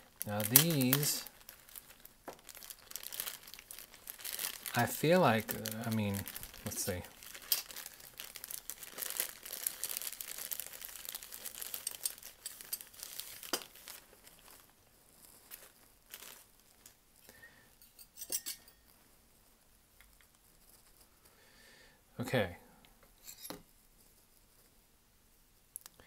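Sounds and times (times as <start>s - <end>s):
plastic packaging crinkling: 0.0s - 17.0s.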